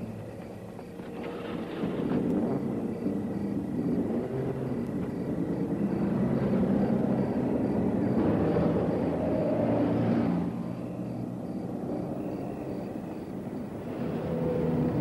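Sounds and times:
car driving off: 0.0s - 15.0s
low rumble of traffic: 0.0s - 15.0s.

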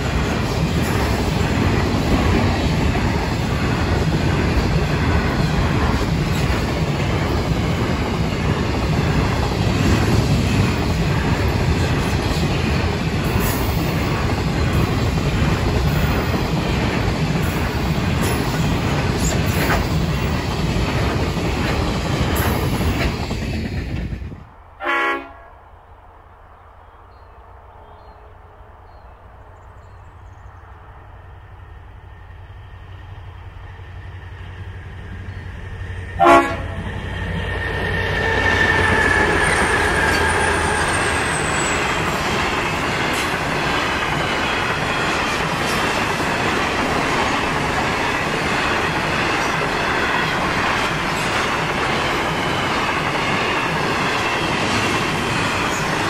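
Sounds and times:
train horn blasts: 24.8s - 25.7s, 36.2s - 36.9s.

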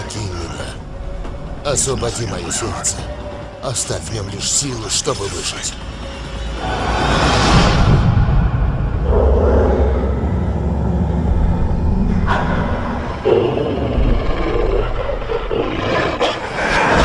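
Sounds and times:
deep rumble: 5.8s - 17.0s
wolves snarling and growling: 9.0s - 17.0s.

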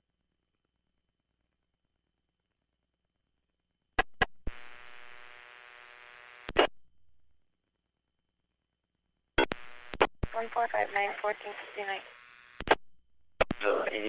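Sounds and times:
radio buzzing hum: 4.5s - 6.7s, 9.4s - 12.8s, 13.4s - 14.0s.

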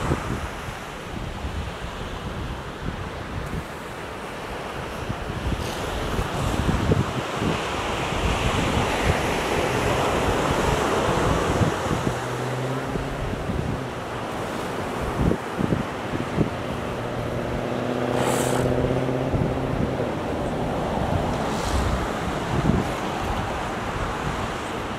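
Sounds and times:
surf breaking on beach: 0.0s - 24.9s
wind rumbling on microphone: 0.0s - 24.9s
brief hiss: 18.1s - 18.7s, 21.5s - 22.0s.

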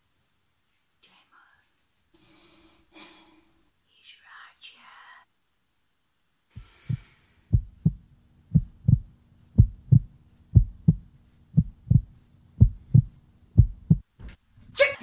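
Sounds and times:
low steady hum: 5.4s - 15.0s
heartbeat thumps: 6.6s - 14.1s.

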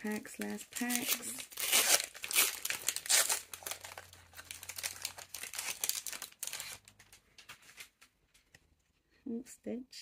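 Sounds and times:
foil wrappers crinkling: 0.0s - 8.0s.

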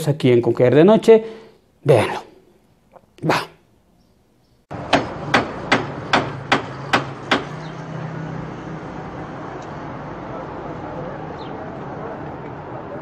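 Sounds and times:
hammer striking chisel: 4.7s - 7.6s.

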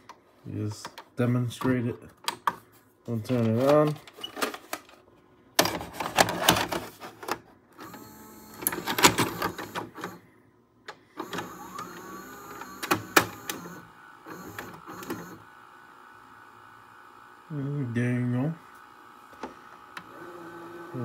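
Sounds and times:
mechanical clicks and clunks: 5.6s - 10.2s, 10.9s - 15.4s
vcr motor whirring: 7.8s - 10.2s, 11.2s - 21.0s.

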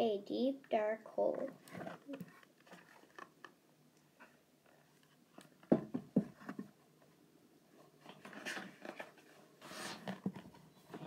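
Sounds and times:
book cover scraping and rustling: 1.6s - 3.3s, 7.9s - 10.6s.

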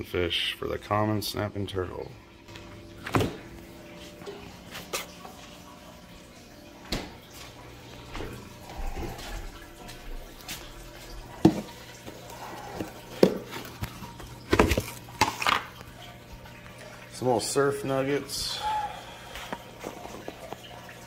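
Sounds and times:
water dripping: 2.2s - 21.0s.

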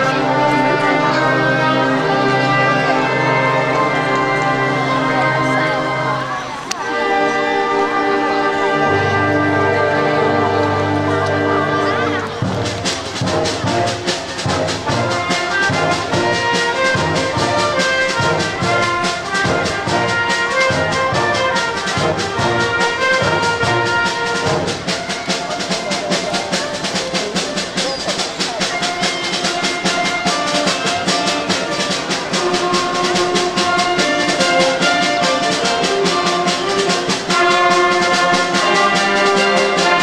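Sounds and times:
concert band playing: 0.0s - 40.0s
percussion strokes: 0.0s - 40.0s.

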